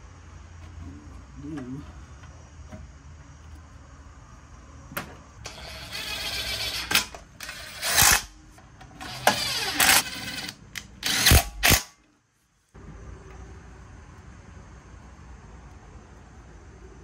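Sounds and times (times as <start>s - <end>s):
cordless drill running in bursts: 5.5s - 8.3s, 9.0s - 11.8s.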